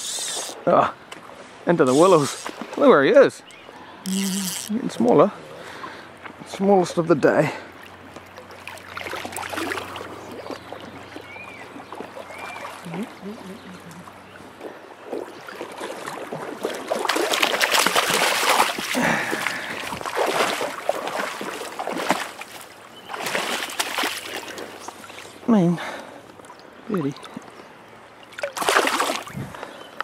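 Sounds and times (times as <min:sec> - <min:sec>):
stream running: 0:00.0 - 0:30.0
splashing in stream water: 0:01.2 - 0:02.9, 0:07.8 - 0:27.6, 0:28.2 - 0:29.6.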